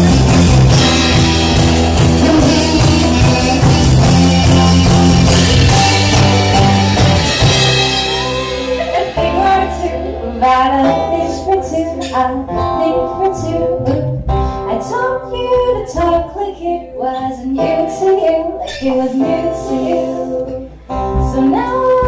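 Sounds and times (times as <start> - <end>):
strummed guitar: 0.0 - 16.4
live band playing: 0.0 - 22.0
women singing: 8.7 - 22.0.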